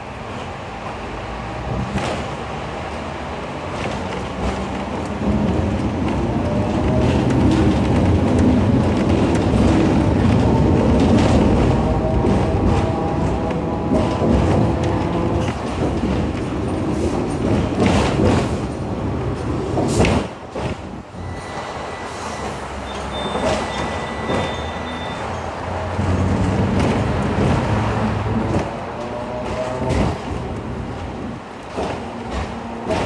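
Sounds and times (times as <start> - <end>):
tram rumbling on track: 0.0 - 33.0
rattling and knocks from wheels: 3.7 - 21.0.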